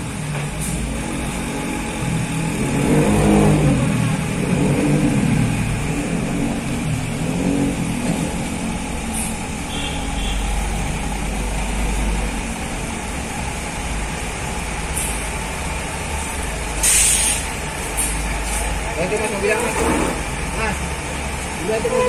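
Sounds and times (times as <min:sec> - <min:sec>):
diesel bus engine running: 0:00.0 - 0:22.0
short air hisses: 0:16.8 - 0:18.2.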